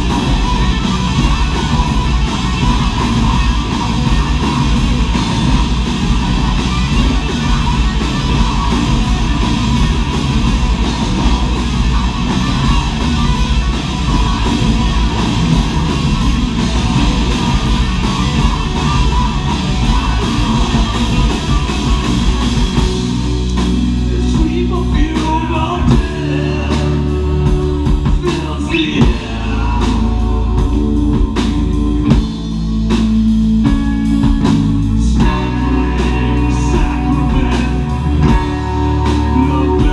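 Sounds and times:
heavy metal band playing: 0:00.0 - 0:39.9
vocals: 0:23.5 - 0:32.9, 0:34.8 - 0:39.9.

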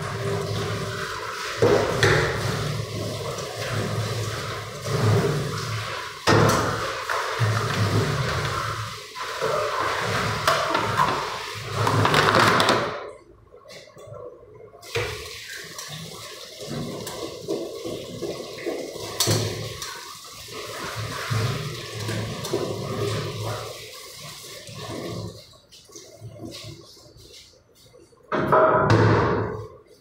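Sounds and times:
tap water running into steel sink: 0:00.0 - 0:12.8, 0:14.8 - 0:25.5.

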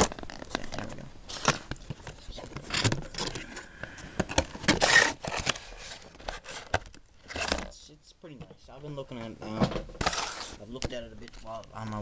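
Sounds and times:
cardboard scraping and rustling: 0:04.1 - 0:07.8, 0:09.2 - 0:11.6.

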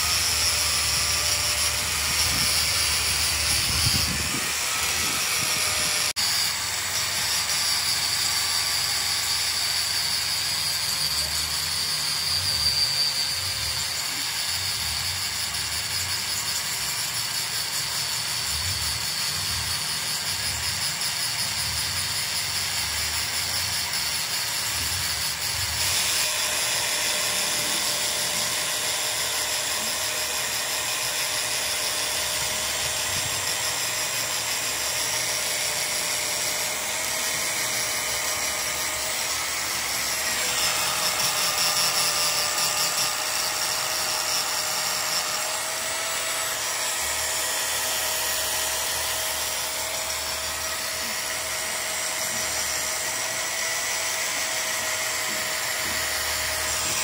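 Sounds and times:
electric power tool whining: 0:00.0 - 0:57.0.

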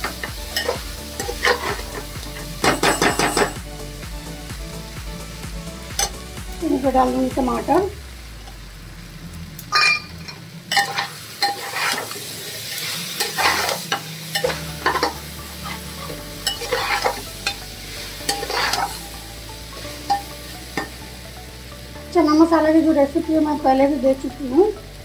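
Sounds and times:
faint sizzle of frying: 0:00.0 - 0:25.0
metal spatula scraping a pot: 0:00.5 - 0:02.1, 0:10.7 - 0:17.6, 0:18.2 - 0:19.0.

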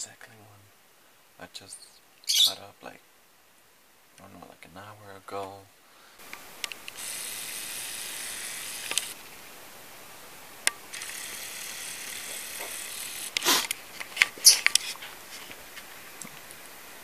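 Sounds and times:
steady hiss: 0:00.0 - 0:17.0
sharp clicks: 0:06.2 - 0:09.2.

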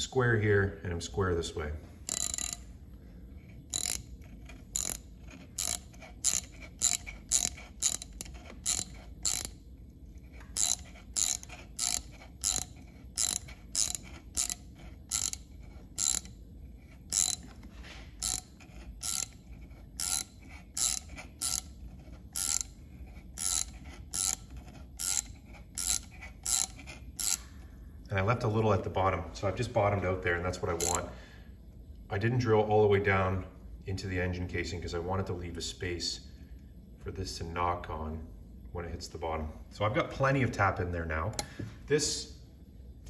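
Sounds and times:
ratchet clicking: 0:02.1 - 0:02.7, 0:03.6 - 0:09.6, 0:10.2 - 0:27.5, 0:30.7 - 0:31.1.

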